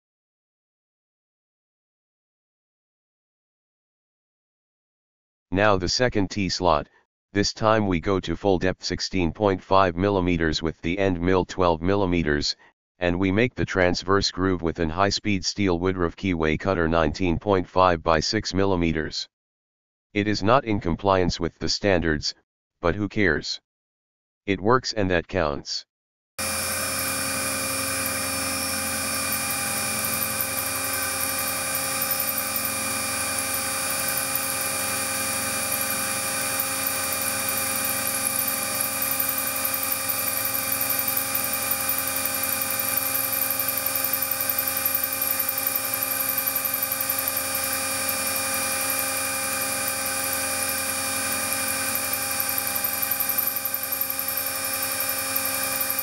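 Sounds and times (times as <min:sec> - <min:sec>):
milling machine whine: 0:26.4 - 0:56.0.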